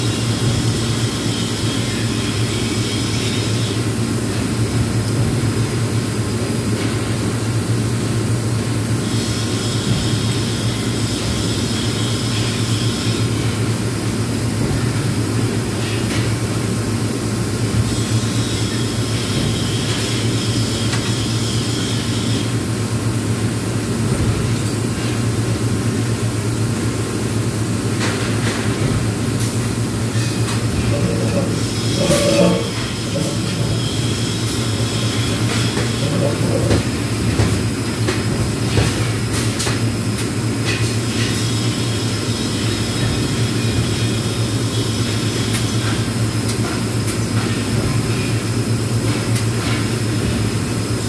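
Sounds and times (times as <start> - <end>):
shop machinery hum: 0.0 - 51.0
high steady whine: 30.2 - 36.9.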